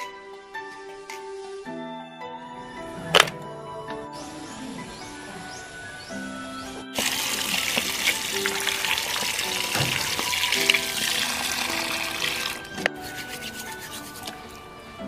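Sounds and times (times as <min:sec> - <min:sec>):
water pouring over clam shells: 0:07.0 - 0:14.4.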